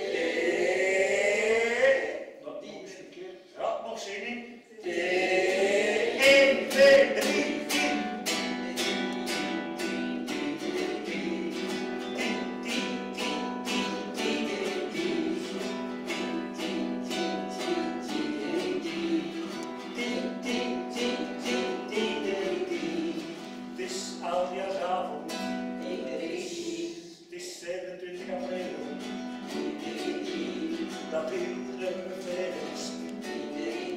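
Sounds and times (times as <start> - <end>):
classical guitar strumming: 6.0 - 27.0, 28.2 - 33.9
man singing: 6.2 - 9.1, 23.8 - 33.9.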